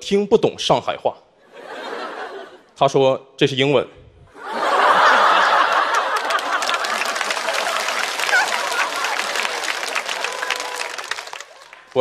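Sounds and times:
audience laughing: 1.5 - 2.7, 4.3 - 11.8.

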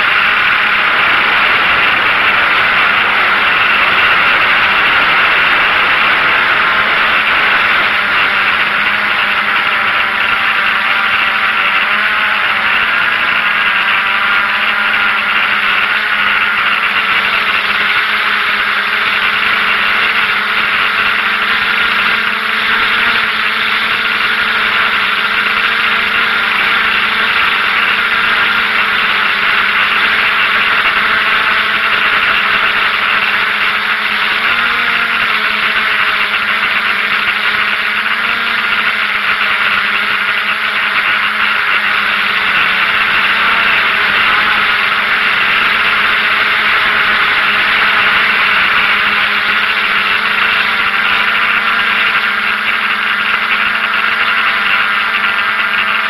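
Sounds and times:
drone propellers whining: 0.0 - 56.0.

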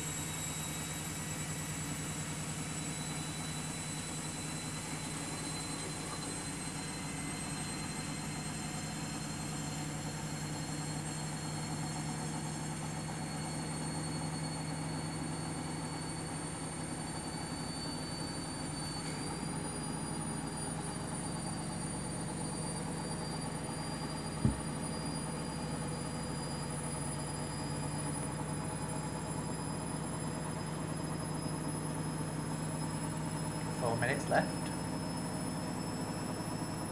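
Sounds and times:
washing machine spinning: 0.0 - 36.9
short knock: 24.4 - 24.7.

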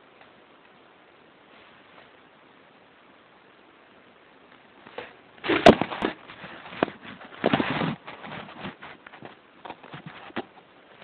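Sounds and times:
paper rustling and scraping: 4.9 - 10.5.

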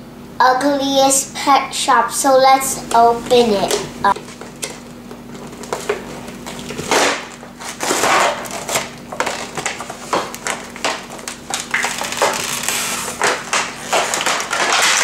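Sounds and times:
plastic tray crinkling and scraping: 3.3 - 15.0.

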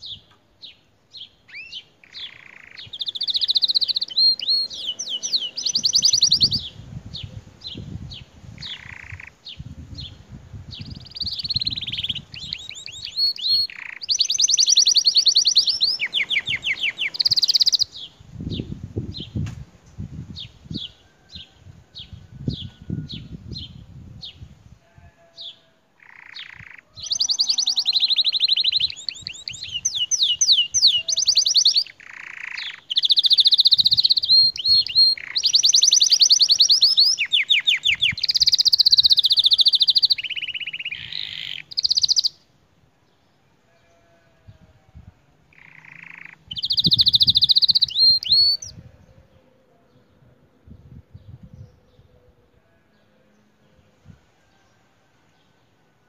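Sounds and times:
canary singing fast trills: 0.0 - 19.4, 22.0 - 42.5, 45.5 - 48.9.

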